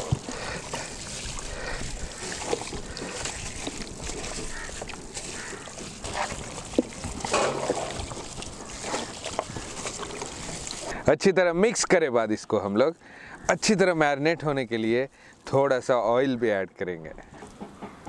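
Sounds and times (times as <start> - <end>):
plastic glove rustling: 0.0 - 11.0
wet squelching of meat mixing: 0.0 - 11.0.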